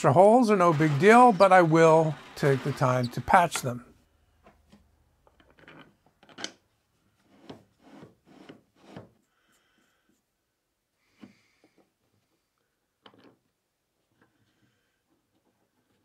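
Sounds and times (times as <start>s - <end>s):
wood scraping and knocking: 0.0s - 3.8s.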